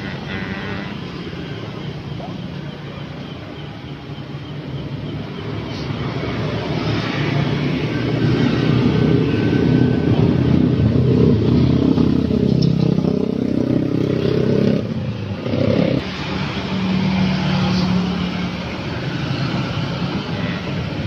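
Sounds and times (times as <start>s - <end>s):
motorcycle engines: 0.0s - 21.0s.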